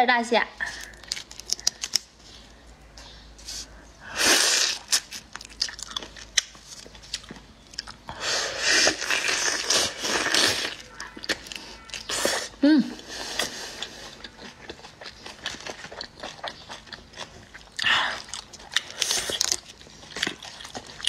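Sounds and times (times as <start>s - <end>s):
wet chewing clicks: 4.6s - 8.2s, 13.1s - 21.0s
loud sucking slurps: 8.2s - 10.8s.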